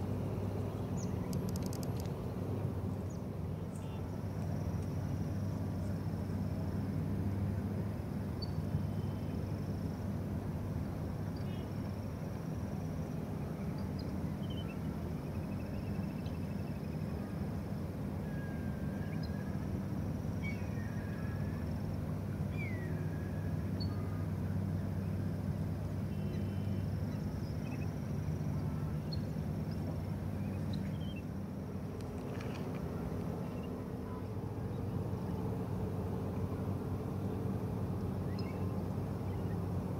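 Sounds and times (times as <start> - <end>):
low engine hum: 0.0 - 39.9
bird chirps: 38.3 - 38.7.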